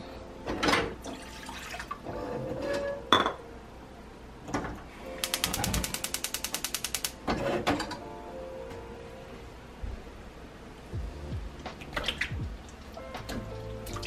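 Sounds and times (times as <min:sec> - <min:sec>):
gas hob ignition clicking: 0:05.2 - 0:07.2.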